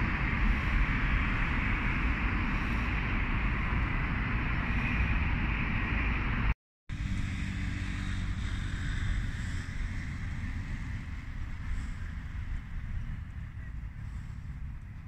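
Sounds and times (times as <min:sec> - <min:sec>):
city street traffic rumble: 0:00.0 - 0:15.0
low hum: 0:00.0 - 0:15.0.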